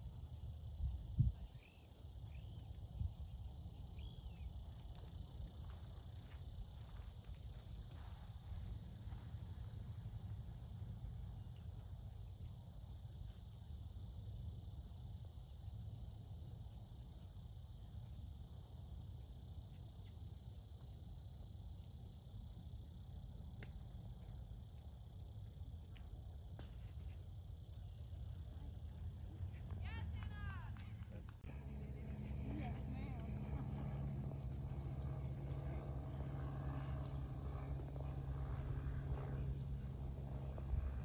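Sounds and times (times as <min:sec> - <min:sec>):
low steady rumble: 0:00.0 - 0:14.4, 0:22.6 - 0:41.0
insects buzzing: 0:00.0 - 0:29.7, 0:31.4 - 0:41.0.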